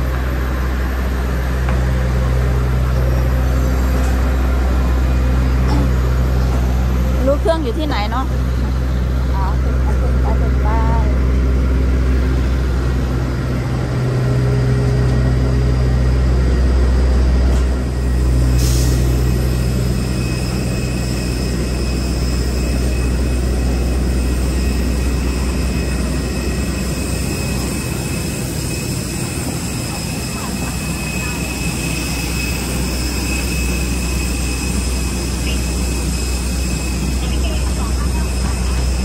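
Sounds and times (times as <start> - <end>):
bus engine low hum: 0.0 - 39.0
jet engine high whine: 0.0 - 39.0.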